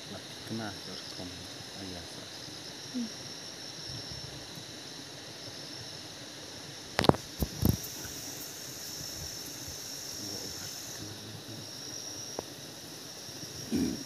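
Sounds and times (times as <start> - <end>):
steady outdoor hiss: 0.0 - 14.0
thin high whine: 6.8 - 14.0.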